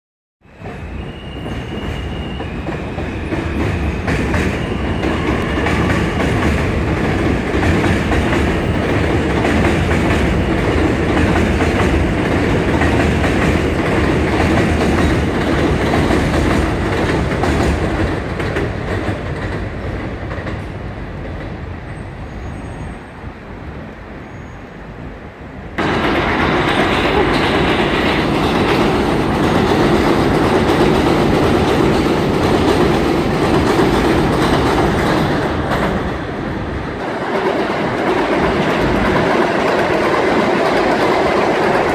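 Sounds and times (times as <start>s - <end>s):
subway train rumbling overhead: 0.4s - 41.9s
high wheel squeal: 0.6s - 6.2s, 21.9s - 23.2s, 24.2s - 24.9s.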